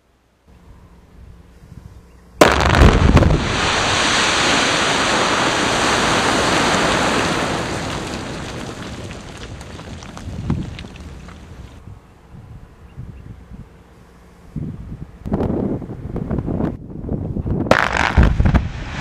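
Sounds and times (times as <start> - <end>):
quarry blast with heavy thumps: 2.4 - 7.2
rock face collapsing rumble: 2.4 - 11.8, 17.7 - 19.0.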